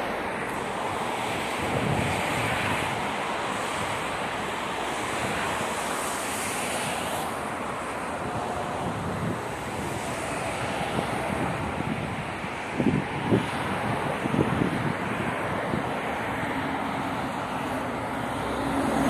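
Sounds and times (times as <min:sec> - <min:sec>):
wind buffeting microphone: 0:00.0 - 0:06.6, 0:07.3 - 0:19.0
road traffic rushing: 0:00.0 - 0:19.0.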